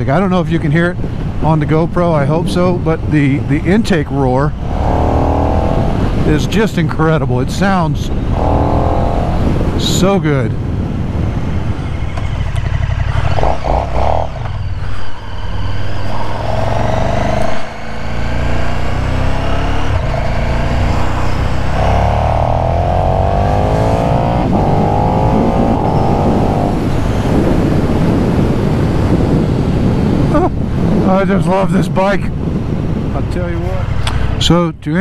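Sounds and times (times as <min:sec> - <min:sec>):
motorcycle engine accelerating: 0:04.4 - 0:06.6, 0:08.1 - 0:10.0, 0:10.6 - 0:31.0.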